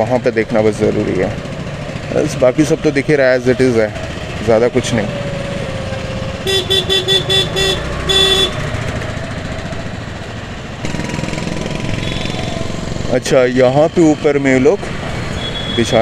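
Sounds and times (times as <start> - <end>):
road traffic and engine noise: 0.0 - 16.0
vehicle horn beeping: 6.4 - 8.7, 12.0 - 12.5, 15.4 - 16.0.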